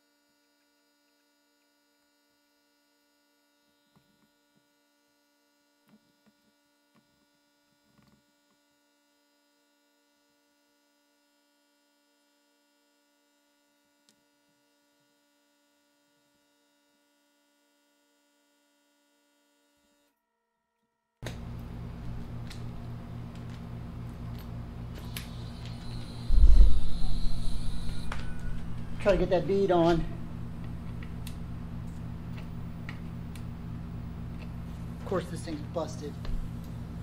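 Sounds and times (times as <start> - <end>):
faint electrical hum: 21.2 - 37.0
loud noise with low drone: 22.4 - 37.0.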